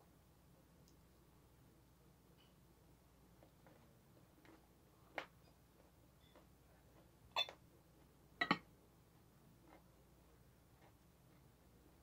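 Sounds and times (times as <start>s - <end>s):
quiet chewing: 3.3s - 8.2s, 9.2s - 12.0s.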